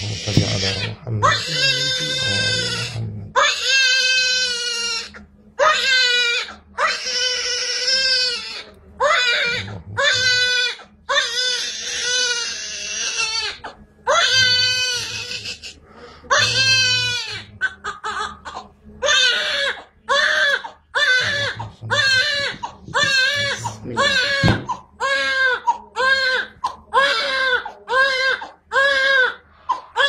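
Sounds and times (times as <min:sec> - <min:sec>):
baby crying: 0:00.0 - 0:30.0.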